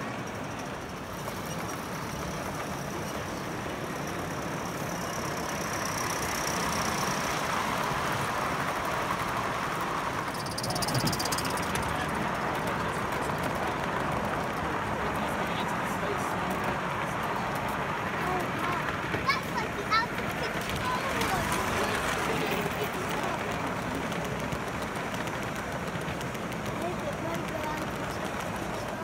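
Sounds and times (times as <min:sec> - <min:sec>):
model train wheels rolling on rail: 0:00.0 - 0:29.0
rapid ticking: 0:03.8 - 0:15.0.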